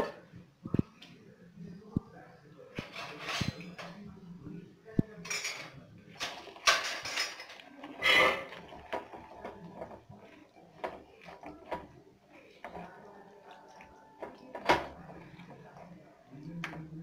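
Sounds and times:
spoon scraping bowl: 2.8s - 3.9s, 5.3s - 16.9s.

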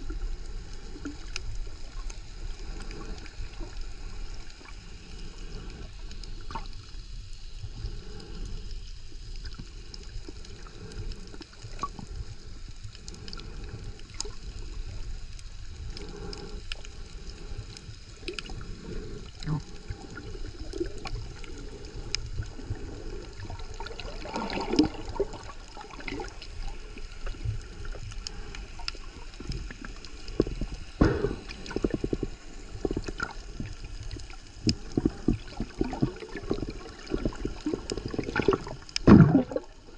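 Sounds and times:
underwater rumble and hiss: 0.0s - 39.9s
bursts of water noise: 18.2s - 39.9s.

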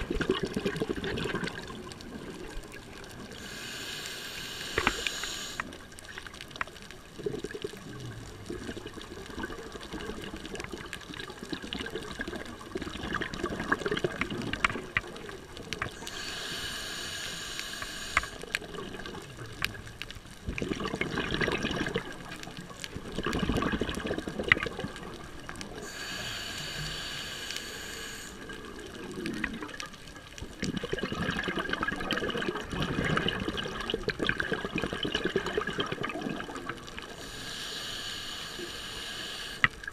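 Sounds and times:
exhaled bubbles rushing: 0.0s - 3.2s, 7.1s - 15.4s, 20.4s - 25.8s, 28.7s - 37.1s
faint clicks: 1.3s - 20.7s, 36.6s - 39.9s
hissing regulator inhale: 3.3s - 5.8s, 16.0s - 18.6s, 25.8s - 28.6s, 37.1s - 39.8s.

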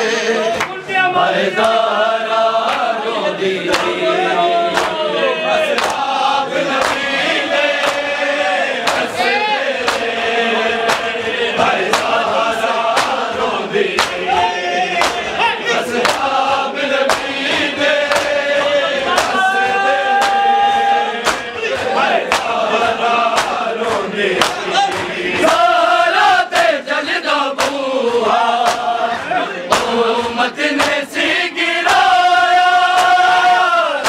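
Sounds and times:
men chanting together: 0.0s - 34.0s
hands slapping on chests: 1.6s - 1.9s, 2.6s - 3.0s, 3.7s - 4.0s, 4.7s - 5.0s, 5.6s - 25.7s, 26.5s - 26.8s, 27.5s - 29.1s, 29.7s - 32.2s, 32.8s - 33.4s.

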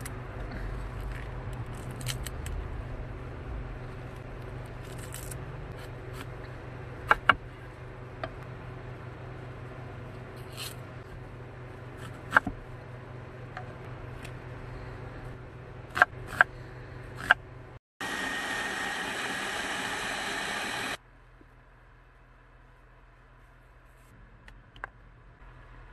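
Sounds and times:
low steady hum: 0.0s - 25.9s
electric blender motor: 18.0s - 21.0s.

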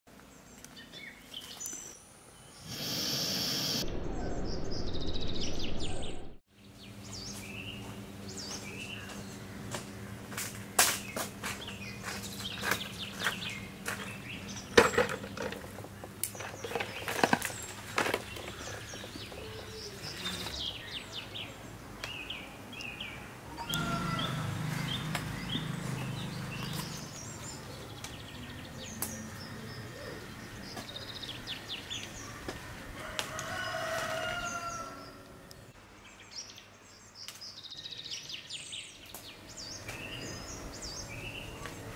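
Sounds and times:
birds chirping: 0.2s - 41.9s
footsteps on gravel: 7.2s - 14.7s.

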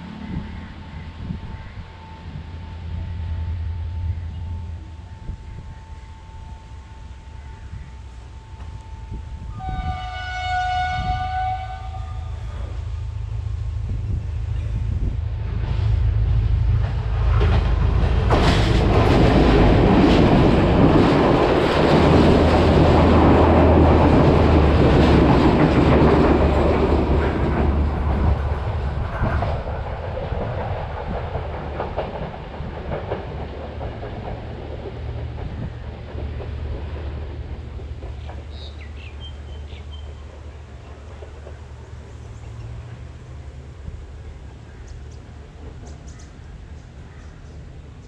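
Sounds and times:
train wheels clattering: 14.0s - 43.0s.

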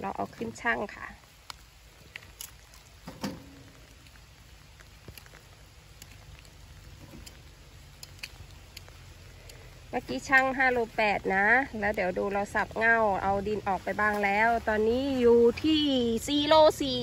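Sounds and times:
roots knocking on metal pan: 3.0s - 4.0s.

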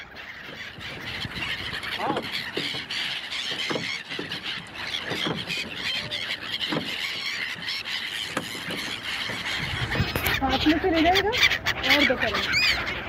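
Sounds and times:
flock of gulls calling: 0.0s - 13.0s.

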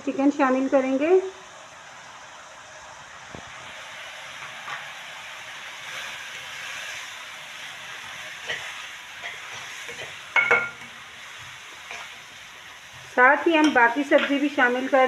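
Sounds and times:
food sizzling in oil: 0.0s - 15.0s
spatula stirring and scraping: 5.9s - 15.0s.

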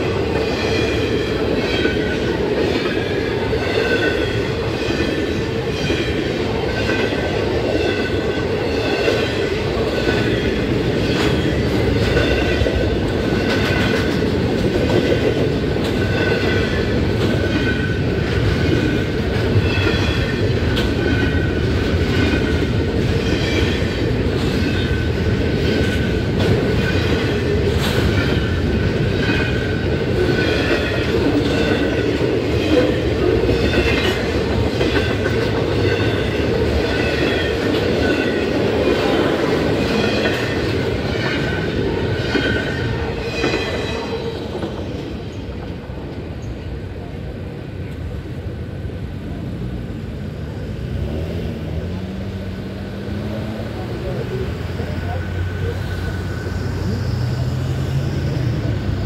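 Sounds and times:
crossing bell ringing: 0.0s - 13.9s
train wheels clacking over rails: 0.0s - 49.5s.

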